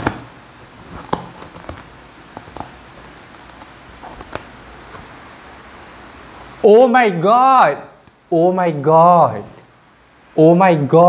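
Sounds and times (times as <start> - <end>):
knife tapping and scraping cardboard: 0.0 - 3.5.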